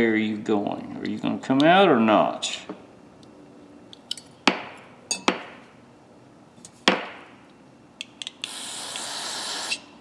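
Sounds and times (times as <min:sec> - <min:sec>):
aerosol can spraying hiss: 0:08.5 - 0:09.7.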